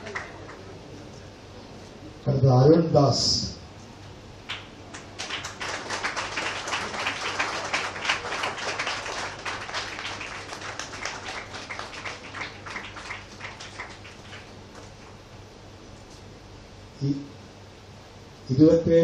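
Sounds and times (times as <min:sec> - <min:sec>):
audience applauding: 0:00.0 - 0:00.9, 0:04.5 - 0:15.2.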